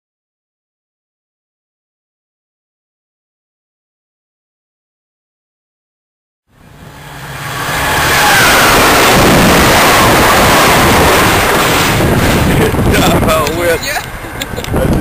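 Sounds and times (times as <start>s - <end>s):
passenger train passing: 6.5s - 15.0s.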